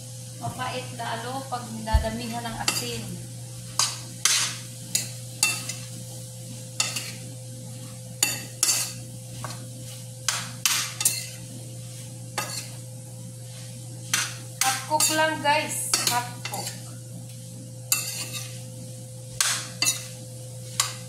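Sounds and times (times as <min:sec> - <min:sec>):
soft sizzle: 0:00.0 - 0:21.0
steady low hum: 0:00.0 - 0:21.0
metal spoon scraping a pan: 0:03.8 - 0:05.9, 0:06.8 - 0:12.8, 0:13.4 - 0:16.9, 0:17.9 - 0:18.7, 0:19.4 - 0:21.0.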